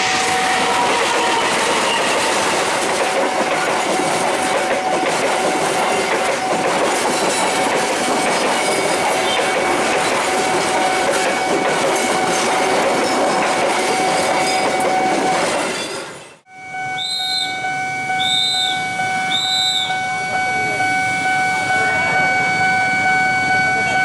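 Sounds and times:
steady high tone: 0.0 - 6.8, 16.5 - 24.0
train wheels clattering on rails: 0.0 - 16.4
short high beeps: 16.6 - 24.0.

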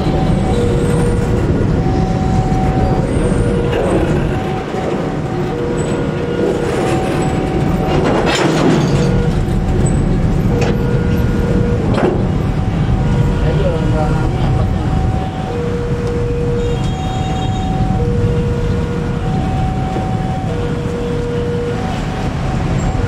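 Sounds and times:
train clanks and screeches: 0.0 - 12.7
train wheels rumbling on rail: 0.0 - 23.0
two-tone crossing alarm: 0.0 - 23.0.

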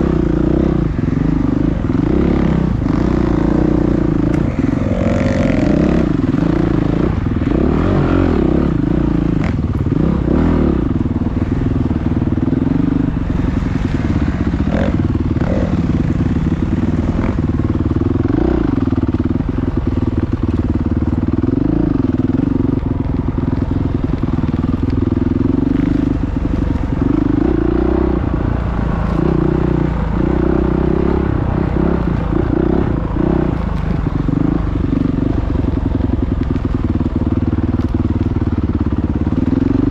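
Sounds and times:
motocross bike engine revving: 0.0 - 11.6, 12.4 - 19.2.

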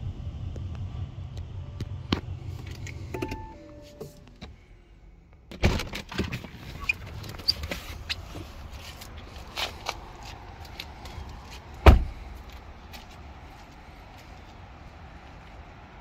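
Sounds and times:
car door opening clunk: 3.1 - 4.5, 11.8 - 12.2
two-note car chime: 3.2 - 4.2.

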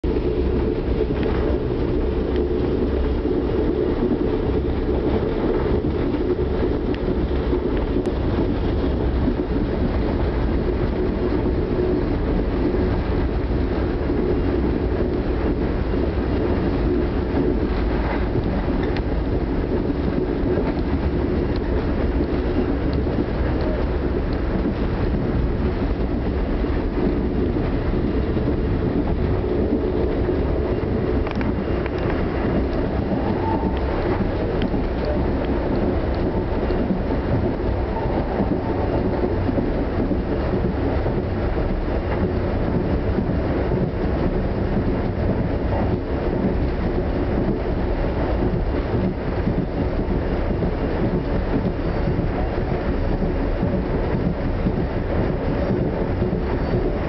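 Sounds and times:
train wheels rumbling on rails: 0.0 - 57.0.

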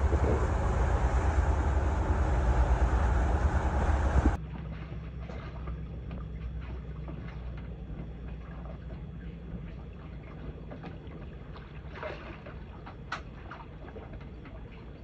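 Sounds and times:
low boat rumble: 0.0 - 15.0
water splashing against hull: 0.0 - 15.0.

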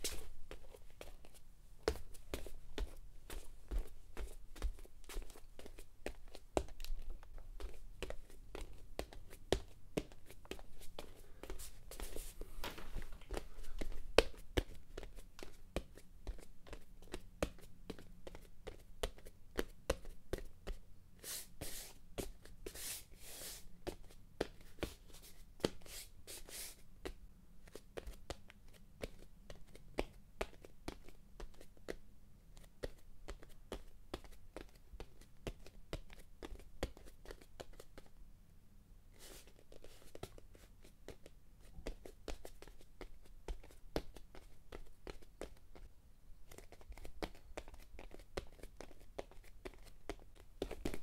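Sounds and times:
footsteps walking: 11.6 - 14.0.

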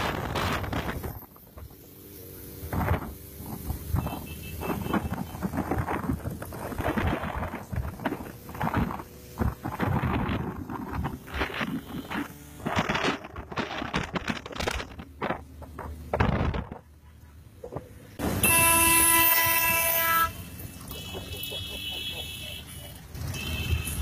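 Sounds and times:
motorcycle engines running: 0.0 - 24.0
wind buffeting microphone: 2.6 - 16.9
loud steady horn blast: 18.2 - 24.0.

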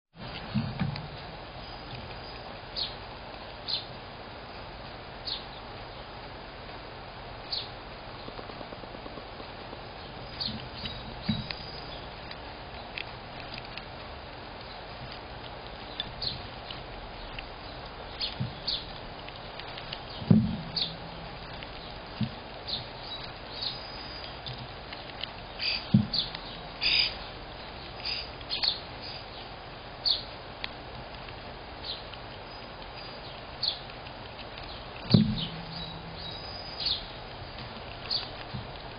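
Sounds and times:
squirrel chittering and crunching: 0.2 - 38.9
steady hiss: 0.2 - 38.9
dull knocks: 20.2 - 21.0, 25.9 - 26.2, 35.1 - 36.3.

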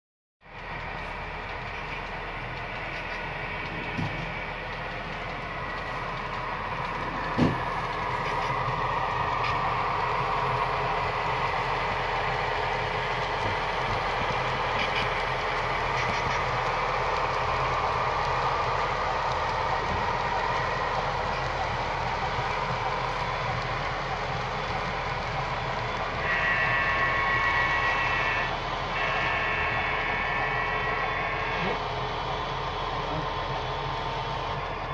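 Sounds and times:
model diesel engine drone: 0.4 - 34.9
model trains humming on track: 0.4 - 34.9
model locomotive horn: 26.2 - 31.8.

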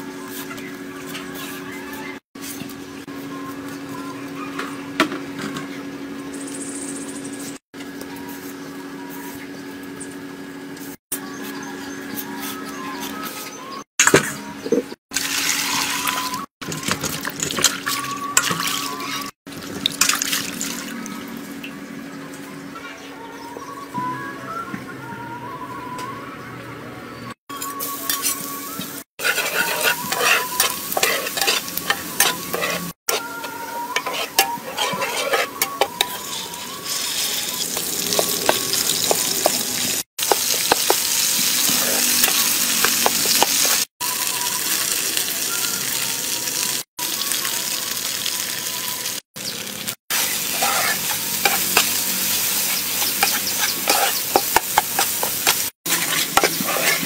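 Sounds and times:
food sizzling in hot oil: 15.1 - 21.0, 27.6 - 57.0
spatula scraping a wok: 29.2 - 43.9, 50.1 - 57.0.

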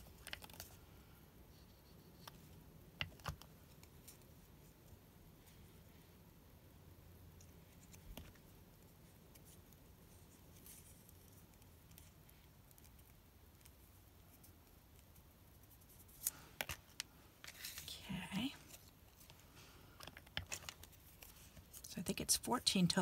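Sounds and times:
paper strips rustling: 0.0 - 0.8, 7.4 - 22.0.

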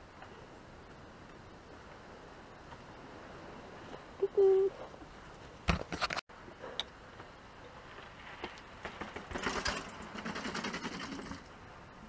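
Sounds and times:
mountain bike clattering and ticking: 8.5 - 11.5.

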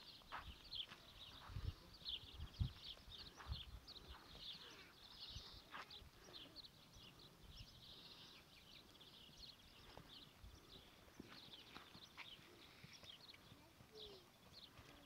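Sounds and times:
faint small bird chirps: 2.2 - 15.0.

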